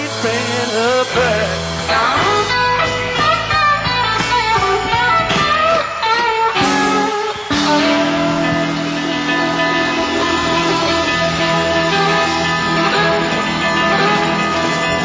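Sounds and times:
bass line: 0.0s - 15.0s
drums: 0.0s - 15.0s
electric lead guitar bending notes: 0.0s - 15.0s.

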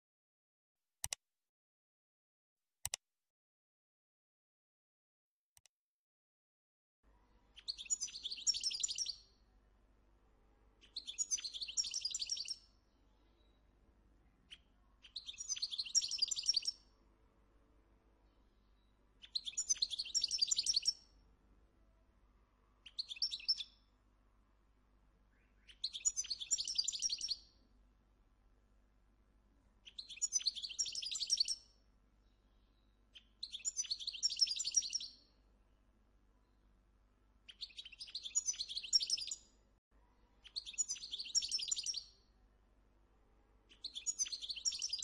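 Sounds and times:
goldfinch singing: 7.6s - 9.4s, 10.8s - 13.6s, 14.4s - 16.9s, 18.7s - 21.1s, 22.8s - 23.9s, 25.3s - 27.6s, 29.8s - 31.7s, 32.5s - 35.3s, 37.5s - 39.5s, 40.4s - 42.2s, 43.7s - 45.0s.

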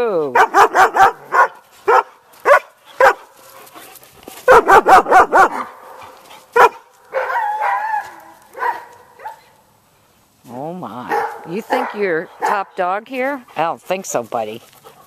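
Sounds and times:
dog barking: 0.4s - 3.3s, 4.5s - 6.0s, 6.6s - 9.5s, 11.1s - 12.7s.

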